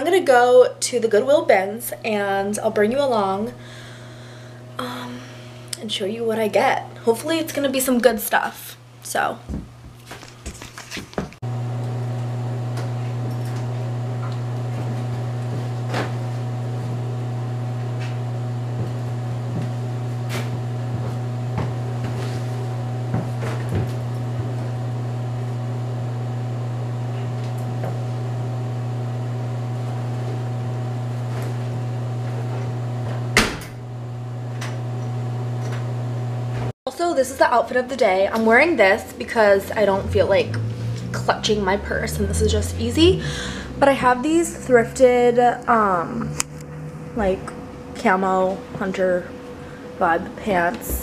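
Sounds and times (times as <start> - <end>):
washer-dryer humming: 0.0 - 51.0
knocks and clunks of laundry: 23.1 - 24.6, 33.3 - 33.8.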